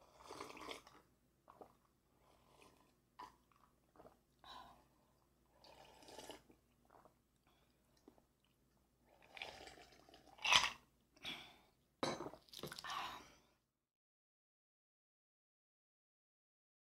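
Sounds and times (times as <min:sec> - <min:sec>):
gulping a drink: 0:00.1 - 0:05.0, 0:05.6 - 0:10.9.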